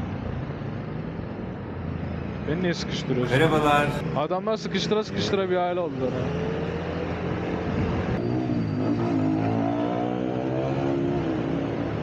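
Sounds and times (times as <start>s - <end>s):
motorcycle engine in traffic: 6.2s - 12.0s.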